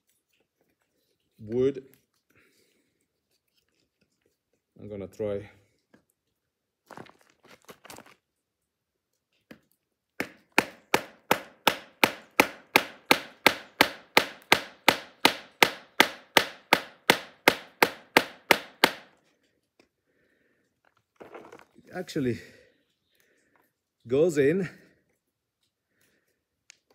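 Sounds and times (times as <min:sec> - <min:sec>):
knife striking wood: 0:10.2 - 0:19.2.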